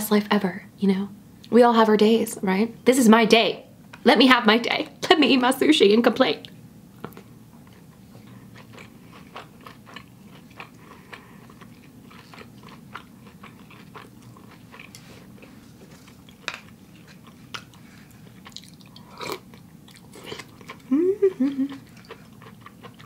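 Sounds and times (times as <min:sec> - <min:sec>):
person chewing: 0:07.0 - 0:23.0.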